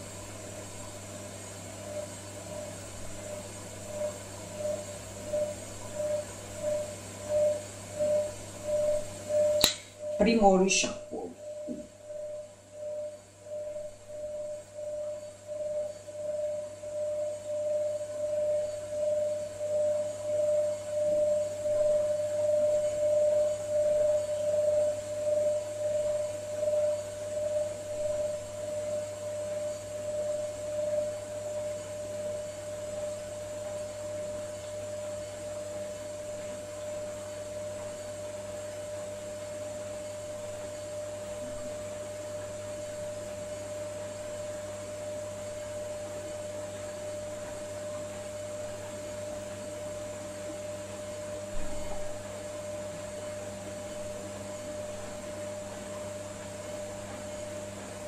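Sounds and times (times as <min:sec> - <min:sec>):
washing machine humming: 0:00.0 - 0:16.3, 0:28.0 - 0:58.0.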